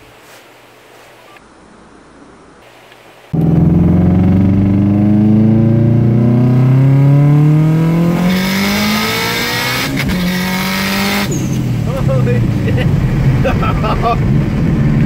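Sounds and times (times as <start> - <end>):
car engine accelerating hard: 3.3 - 15.0.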